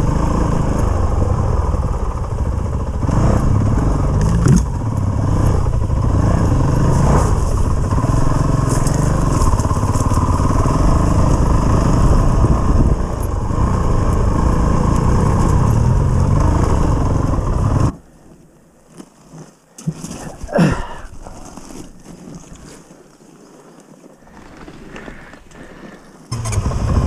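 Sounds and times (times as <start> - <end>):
dirt bike engine running: 0.0 - 18.0, 24.3 - 27.0.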